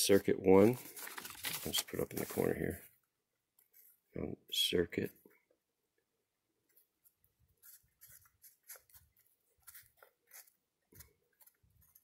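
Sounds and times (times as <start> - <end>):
pencil scratching on paper: 7.6 - 12.0.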